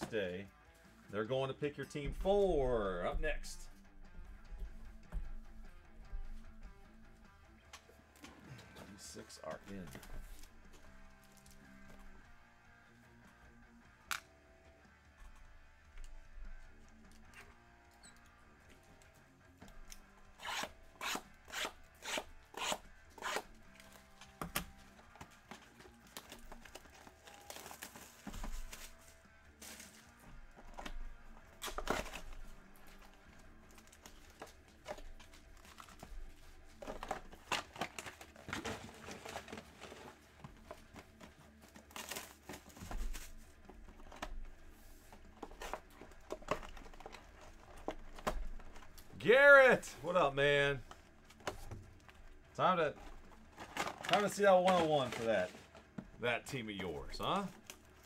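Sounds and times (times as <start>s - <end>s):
wrapping tearing and crinkling: 25.6s - 30.2s, 31.6s - 43.8s.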